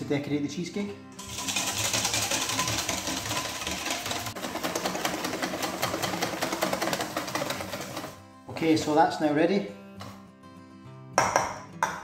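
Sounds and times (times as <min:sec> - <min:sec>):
whisk clicking on metal bowl: 0:01.2 - 0:08.2.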